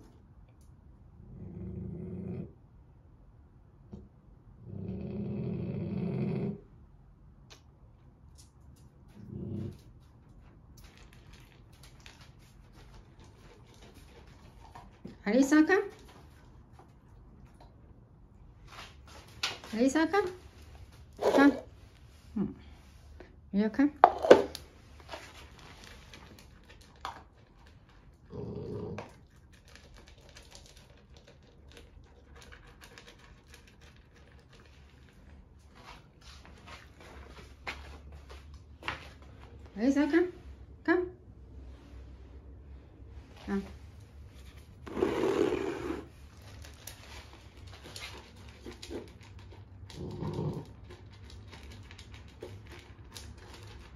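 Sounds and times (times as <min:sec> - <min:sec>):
kibble crunching against bowl: 0:09.1 - 0:15.2, 0:21.1 - 0:21.8, 0:24.0 - 0:38.0, 0:44.5 - 0:53.9.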